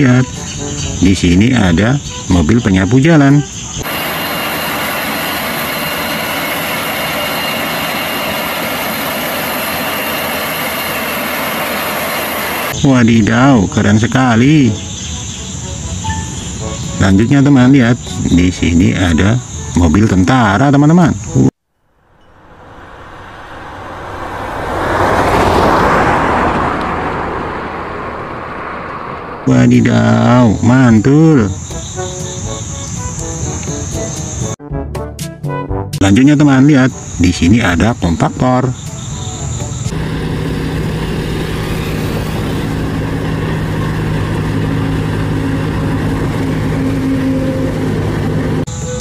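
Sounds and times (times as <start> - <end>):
road roller diesel engines droning: 0.0 - 19.8, 22.0 - 34.6, 38.6 - 49.0
insect chirring: 0.3 - 11.9, 12.8 - 19.9, 28.9 - 34.6
military trucks driving past: 3.4 - 18.3, 21.9 - 34.6, 36.7 - 49.0.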